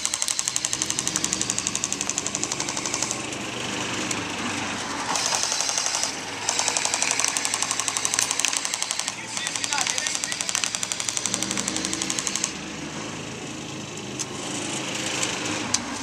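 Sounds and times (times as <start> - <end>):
airsoft machine gun firing: 0.0 - 3.4, 5.1 - 12.6
vehicle engine running: 0.0 - 16.0.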